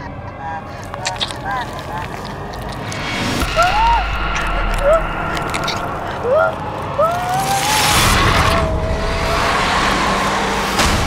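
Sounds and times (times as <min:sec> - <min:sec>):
woman wailing: 0:06.1 - 0:07.9.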